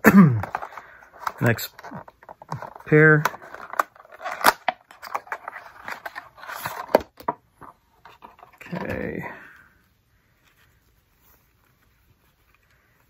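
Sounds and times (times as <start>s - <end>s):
cloth pouch rustling: 10.3s - 13.0s.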